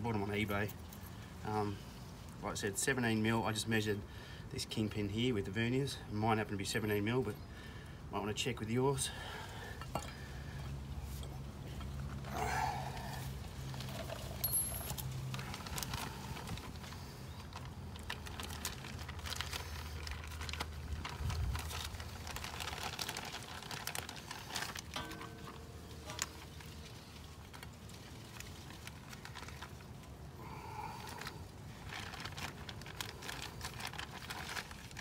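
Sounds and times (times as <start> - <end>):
low steady hum: 6.8 - 35.0
hands handling rag and parts: 9.8 - 18.3, 24.1 - 30.2.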